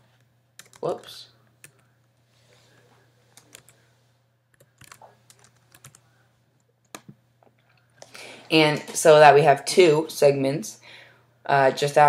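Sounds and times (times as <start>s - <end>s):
keystrokes on computer keyboard: 0.6s - 0.8s, 3.4s - 3.8s, 4.5s - 6.0s, 6.8s - 7.2s.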